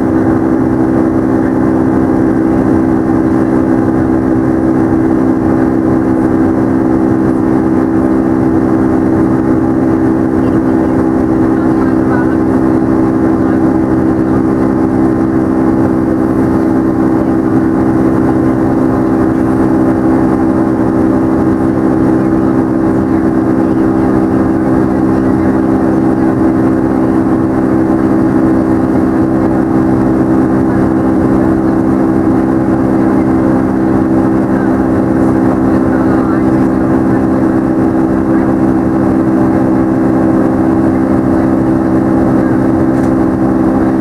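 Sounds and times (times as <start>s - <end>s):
jet engine roar with buzzing tones: 0.0s - 44.0s.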